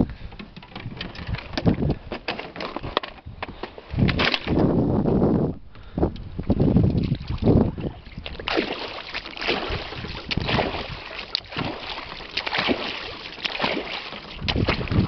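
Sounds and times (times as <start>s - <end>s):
oars splashing in water: 6.9s - 15.0s.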